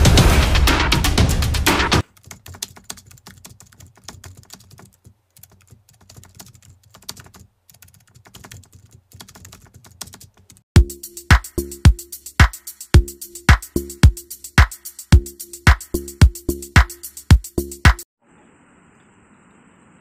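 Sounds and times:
loud music: 0.0 - 2.0, 10.8 - 18.1.

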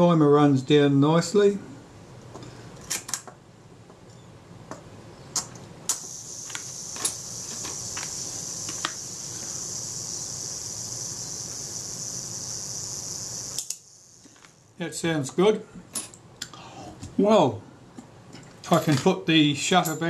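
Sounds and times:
clockwork escapement buzzing: 5.9 - 14.7.

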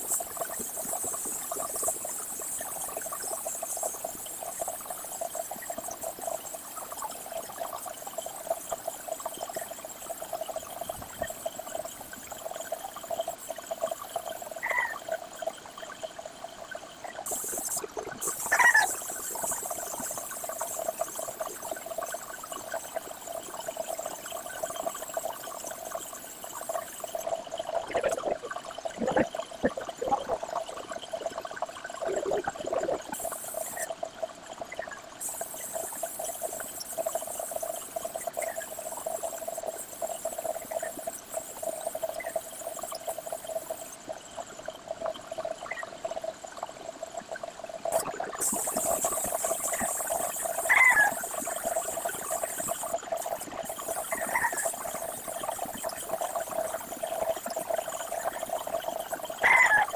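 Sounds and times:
steady hum: 15.8 - 44.7, 47.9 - 59.4
spray gun hissing: 17.3 - 21.2, 48.4 - 55.3.

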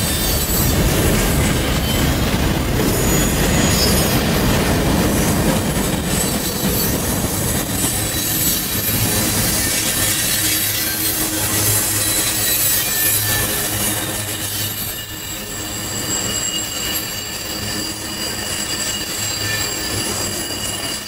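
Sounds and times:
train wheels rumbling and clattering: 0.0 - 21.0
high-pitched wheel squeal: 2.8 - 4.3, 6.0 - 21.0.

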